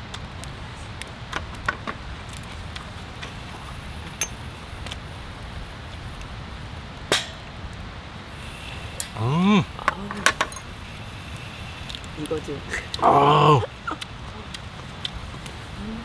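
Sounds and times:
glasses clinking: 10.2 - 10.7.

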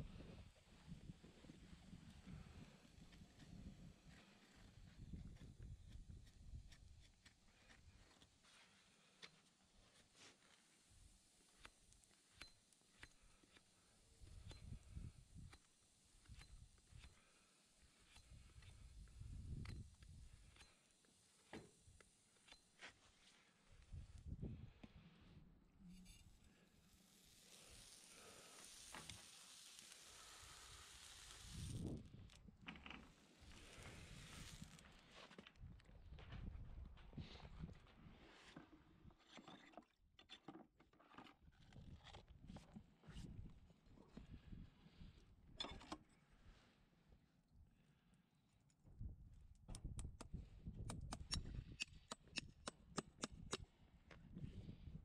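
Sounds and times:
hot horseshoe sizzling on hoof: 0.2 - 24.2, 25.8 - 35.3, 49.8 - 53.6
hammer tapping horseshoe nail: 49.7 - 53.6.

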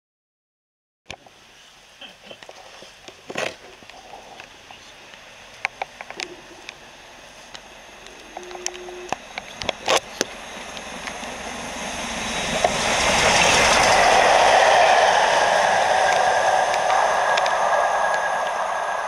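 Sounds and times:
steam train passing at speed: 3.8 - 19.0
brief low tone: 6.2 - 6.7, 8.1 - 9.2.

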